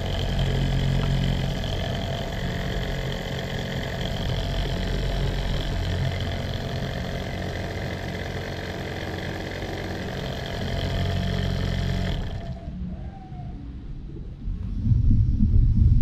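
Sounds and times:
small electric motor whirring: 0.0s - 12.8s.

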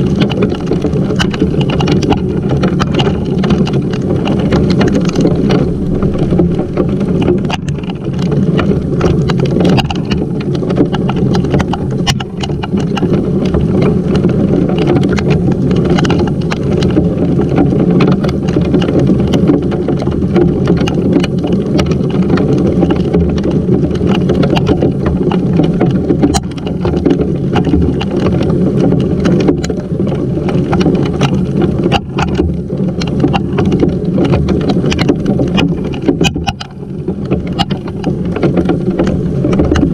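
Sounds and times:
heavy rain and hail pelting: 0.0s - 39.9s.

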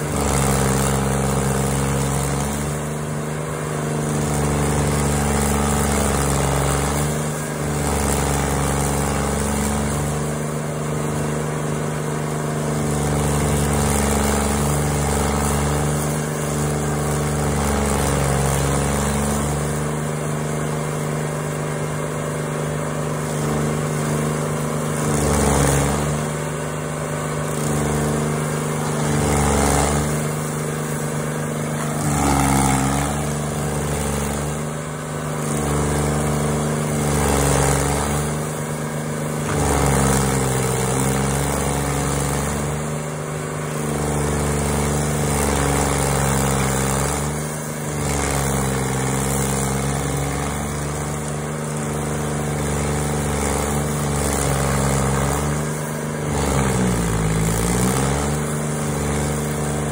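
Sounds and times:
cutter grinding wood: 0.0s - 59.9s
stump grinder engine running: 0.0s - 59.9s.

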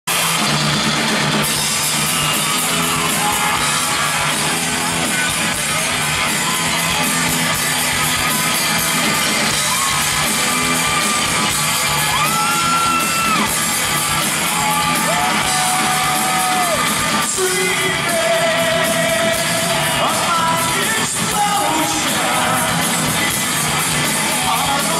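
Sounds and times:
drums: 0.0s - 24.9s
man singing lead vocals: 15.5s - 23.3s, 24.1s - 24.9s.

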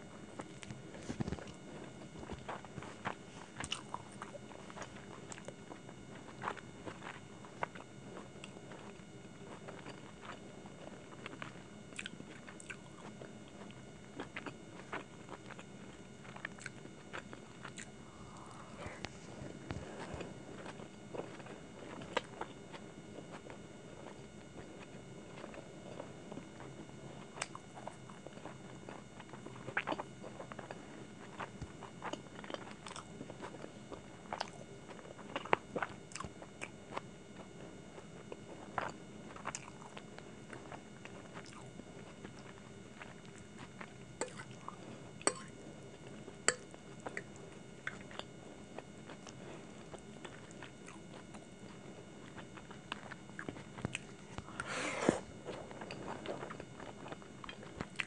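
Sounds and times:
person chewing noodles: 0.1s - 58.0s.

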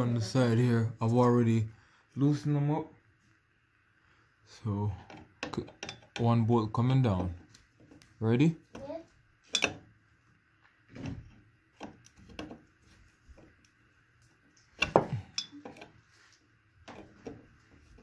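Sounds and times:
screwdriver clinking against metal: 5.4s - 6.2s, 9.5s - 9.8s, 14.8s - 15.9s.

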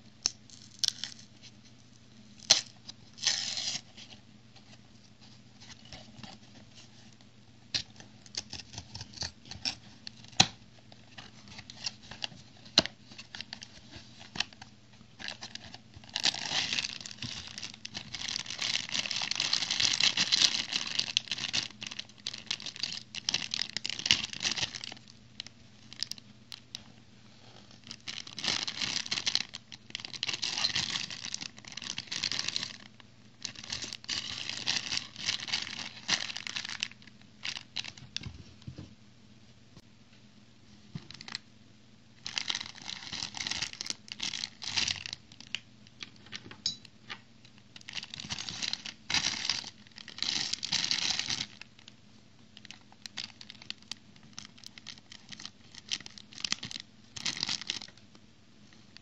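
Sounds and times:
plastic bag crinkling: 15.2s - 26.7s, 27.7s - 38.2s, 42.2s - 45.6s, 47.8s - 51.9s, 52.6s - 58.0s.

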